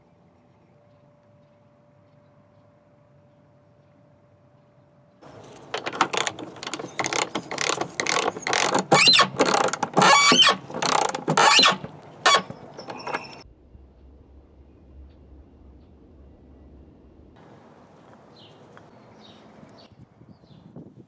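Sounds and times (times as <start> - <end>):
ratchet clicking: 5.3 - 13.4
ratchet squeak: 5.3 - 13.4.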